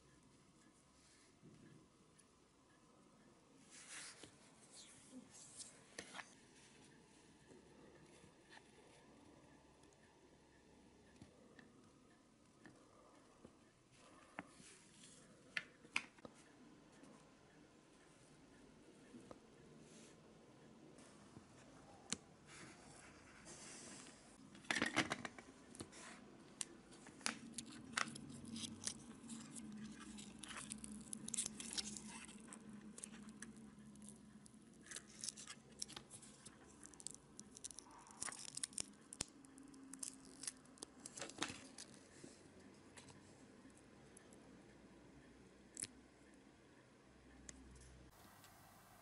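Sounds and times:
silicone mould crackling and tearing: 27.2 - 42.0.

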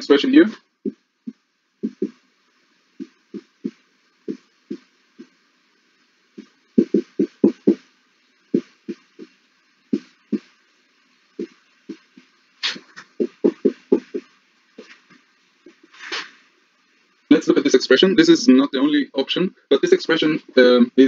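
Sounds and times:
marker squeaking on whiteboard: 1.8 - 2.2, 6.4 - 7.9, 11.4 - 16.4.

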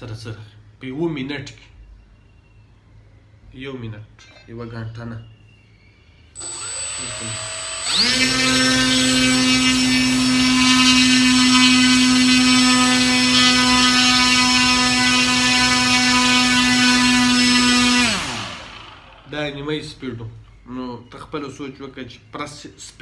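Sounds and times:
model airplane motor whine: 6.4 - 19.2.

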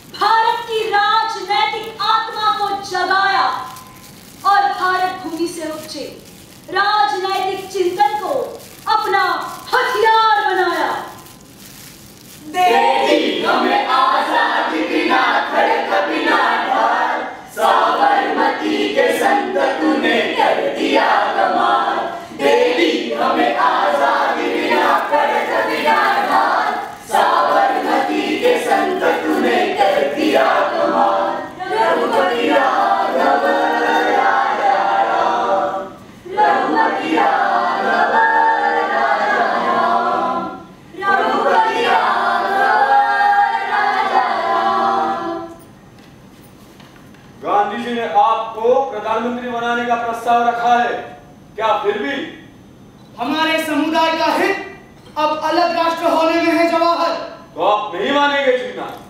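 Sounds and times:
group singing unaccompanied: 12.4 - 45.6.

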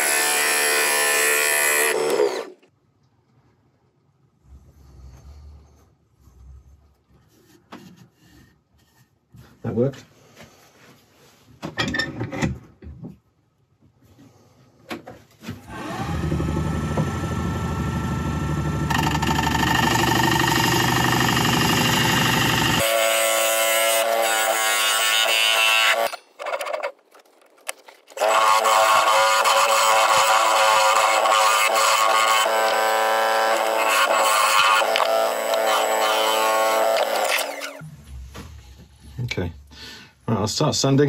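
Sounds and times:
wood lathe running: 0.0 - 2.6, 15.7 - 26.2, 28.2 - 37.8
turning tool cutting wood: 0.0 - 2.7, 15.7 - 27.0, 27.7 - 37.8.

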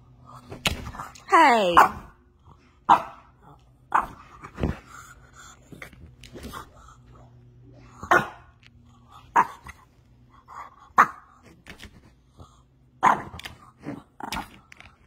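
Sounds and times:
dog barking: 1.7 - 2.1, 2.9 - 3.3, 3.9 - 4.2, 8.0 - 8.5, 9.3 - 9.7, 11.0 - 11.3, 13.0 - 13.4.

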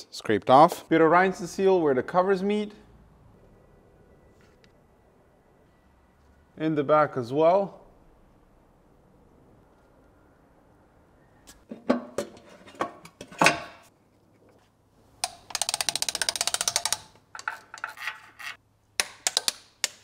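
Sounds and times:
ratchet wrench clicking: 15.2 - 17.2.

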